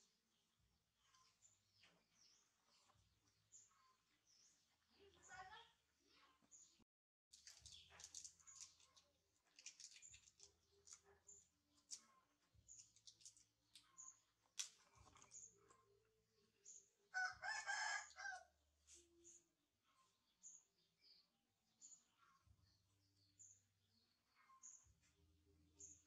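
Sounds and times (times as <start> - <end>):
rooster crowing: 17.2 - 18.5.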